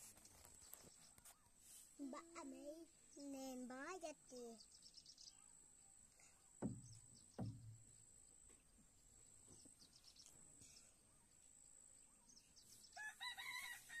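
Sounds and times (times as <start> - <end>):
faint chirps: 0.2 - 14.0
dull thump: 6.6 - 8.6.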